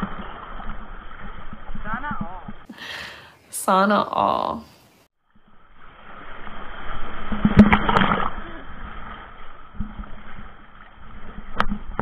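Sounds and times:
surf rushing over camera: 5.8s - 12.0s.

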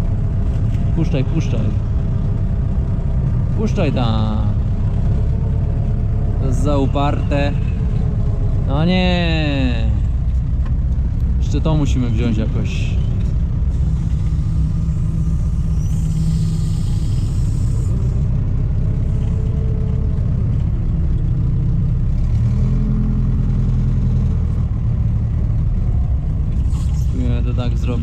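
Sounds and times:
tractor engine running: 0.0s - 28.0s.

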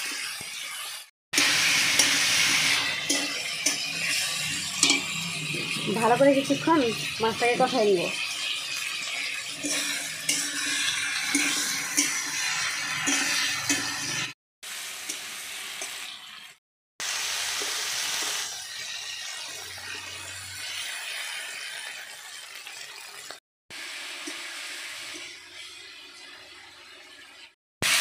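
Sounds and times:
spatula scraping in a pan: 0.0s - 14.3s
food sizzling in oil: 0.0s - 28.0s
spatula clinking on pan: 4.8s - 5.2s.

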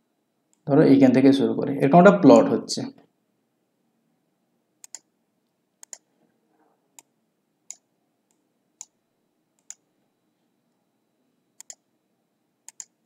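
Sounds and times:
computer mouse clicks: 4.8s - 5.1s, 5.8s - 6.1s, 7.7s - 9.0s, 9.6s - 9.8s, 11.6s - 11.8s, 12.6s - 13.0s.

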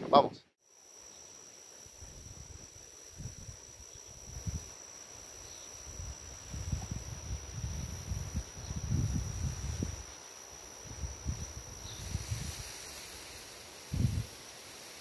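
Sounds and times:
high-pitched insect trill: 0.6s - 15.0s.

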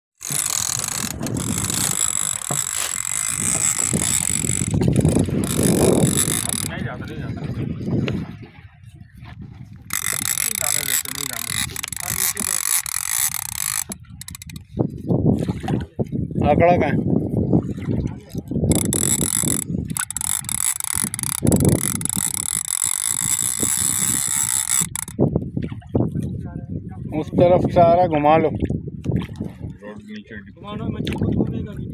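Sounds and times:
fishing reel drag buzzing: 0.2s - 6.8s, 9.9s - 14.7s, 18.7s - 25.2s.

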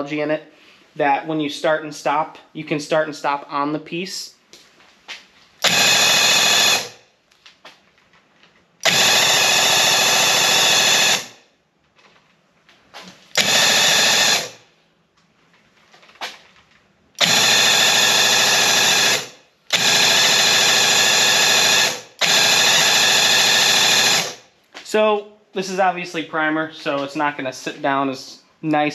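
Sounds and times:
paint sprayer pump buzzing: 5.6s - 7.0s, 8.8s - 11.4s, 13.3s - 14.6s, 17.2s - 24.4s.

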